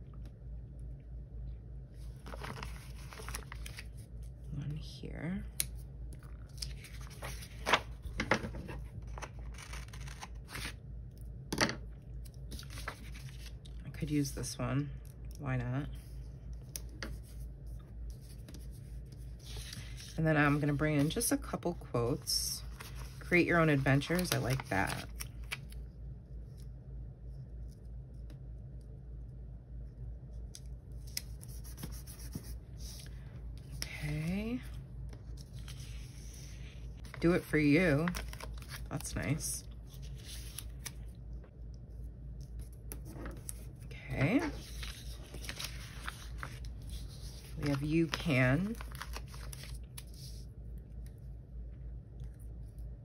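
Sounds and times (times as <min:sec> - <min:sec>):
steady low hum: 0:00.0 - 0:53.0
paper pages rustling: 0:02.0 - 0:04.2, 0:05.6 - 0:10.8, 0:12.2 - 0:13.8, 0:18.1 - 0:25.8, 0:30.6 - 0:33.9, 0:35.1 - 0:41.2, 0:42.0 - 0:50.4
paper rubbing: 0:44.2 - 0:47.9.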